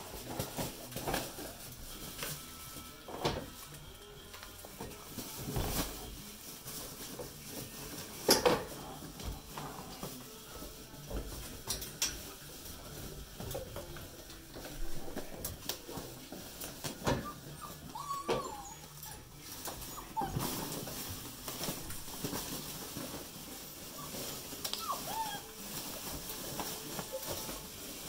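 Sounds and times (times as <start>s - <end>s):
puppies clicking and knocking: 6.6s - 28.0s
puppy whimper: 17.1s - 20.7s, 23.9s - 25.6s.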